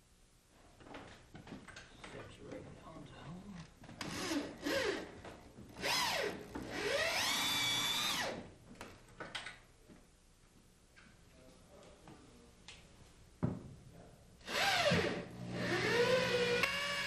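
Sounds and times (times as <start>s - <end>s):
electric drill motor whine: 4.0s - 5.1s, 5.8s - 8.4s, 14.5s - 17.0s.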